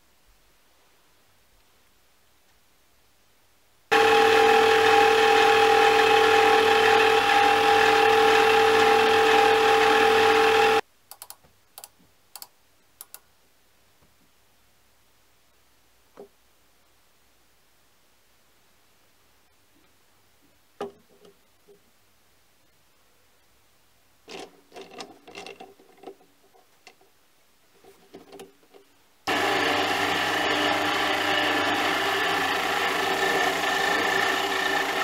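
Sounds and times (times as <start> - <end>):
lathe whining: 3.9 - 10.8, 29.3 - 35.0.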